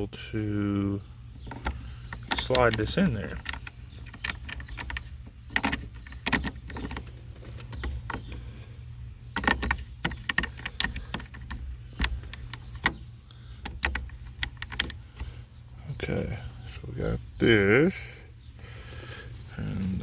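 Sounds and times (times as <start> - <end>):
low steady hum: 0.0 - 20.0
small metal parts clicking: 1.4 - 8.4, 9.3 - 15.3.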